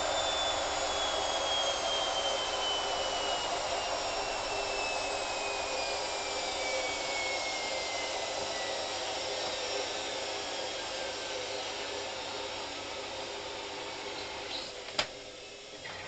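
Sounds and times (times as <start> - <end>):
motor whine falling in pitch: 0.0 - 8.8.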